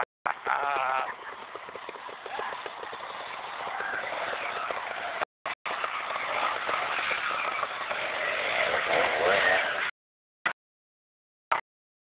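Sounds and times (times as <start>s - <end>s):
motorcycle engine at low revs: 4.4s - 9.9s.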